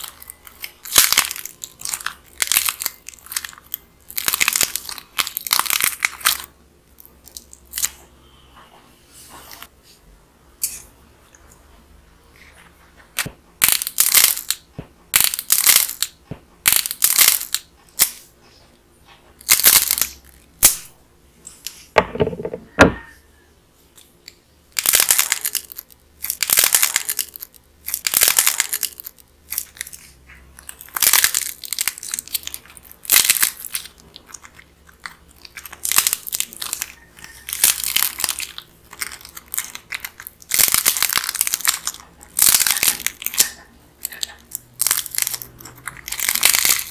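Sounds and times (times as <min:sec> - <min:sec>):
dried clay crust cracking: 0:00.0 - 0:08.0, 0:24.0 - 0:46.9.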